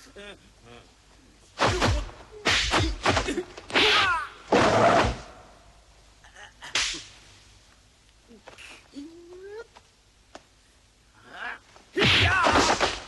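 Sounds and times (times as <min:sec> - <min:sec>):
punch and kick blows: 0:01.6 - 0:05.3, 0:12.0 - 0:13.0.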